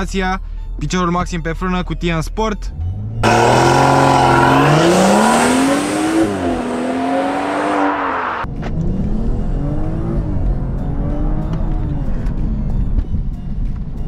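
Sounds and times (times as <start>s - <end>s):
car engine launching at full throttle: 2.8s - 11.8s.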